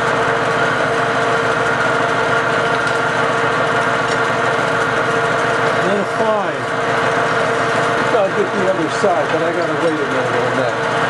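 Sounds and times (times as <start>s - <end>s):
metal lathe whining: 0.0s - 11.0s.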